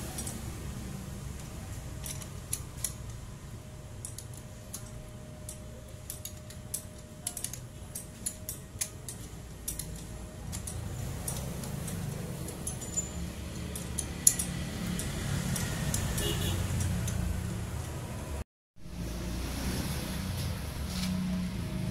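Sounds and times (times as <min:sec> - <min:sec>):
ratchet wrench clicking: 0:00.0 - 0:00.6, 0:01.2 - 0:03.3, 0:04.0 - 0:17.3.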